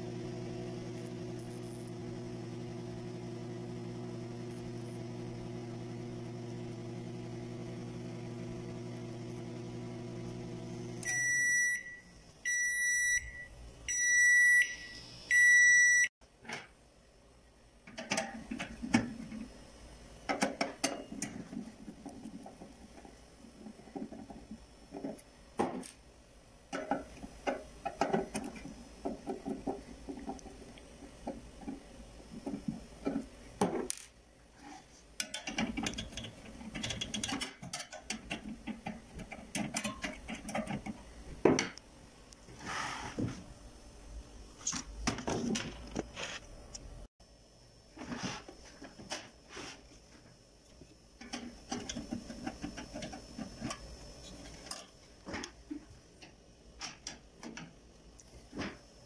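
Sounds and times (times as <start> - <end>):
microwave oven hum: 0.0 - 16.0, 17.3 - 59.0
high-pitched control panel beeps: 11.0 - 16.1.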